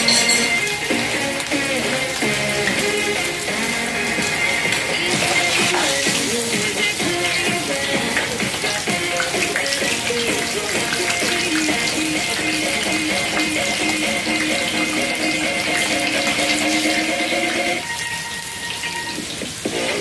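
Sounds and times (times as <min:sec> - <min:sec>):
background music: 0:00.0 - 0:20.0
fish sizzling in hot oil: 0:00.0 - 0:20.0.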